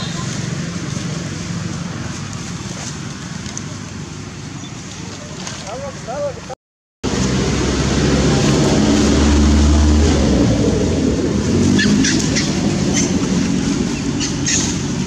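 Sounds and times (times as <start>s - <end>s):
vehicle engine running: 7.0s - 15.0s.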